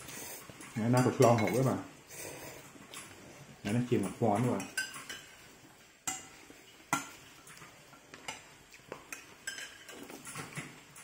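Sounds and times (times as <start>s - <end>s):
spoon clinking against ceramic bowl: 0.8s - 1.8s, 9.1s - 10.4s.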